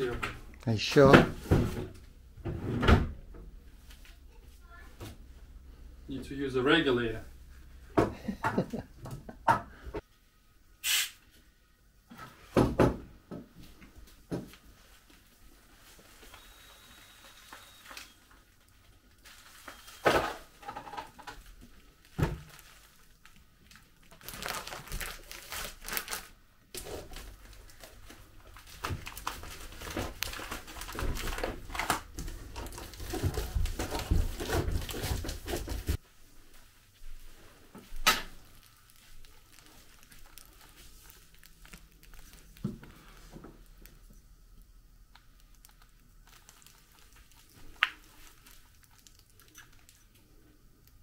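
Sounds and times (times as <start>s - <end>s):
plastic film crinkling: 15.0s - 20.0s, 21.4s - 36.0s, 37.9s - 44.3s, 45.0s - 51.0s.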